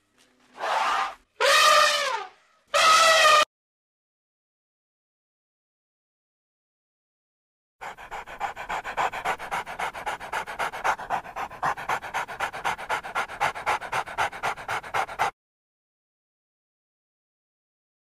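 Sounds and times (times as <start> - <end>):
dog panting: 7.8 - 15.4.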